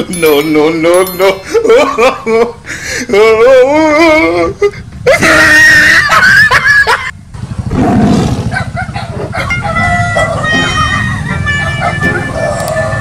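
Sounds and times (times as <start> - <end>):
loud scream: 5.1 - 6.5.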